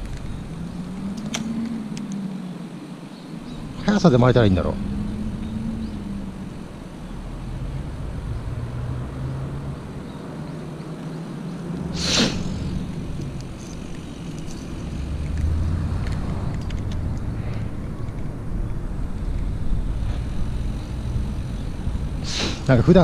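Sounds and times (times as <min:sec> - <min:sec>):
outdoor rumble: 0:00.0 - 0:23.0
short hiss: 0:11.9 - 0:12.7, 0:22.2 - 0:22.8.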